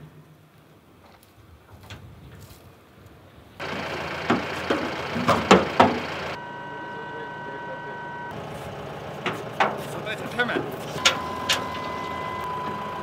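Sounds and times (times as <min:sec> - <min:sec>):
hydraulic lift motor whine: 0:03.6 - 0:13.0
metal platform clunks: 0:04.3 - 0:06.1.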